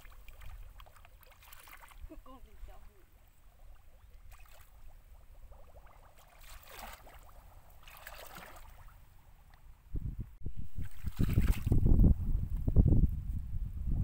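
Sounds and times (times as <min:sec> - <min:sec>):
feet splashing through water: 0:00.0 - 0:02.8, 0:03.7 - 0:09.0, 0:10.8 - 0:11.8.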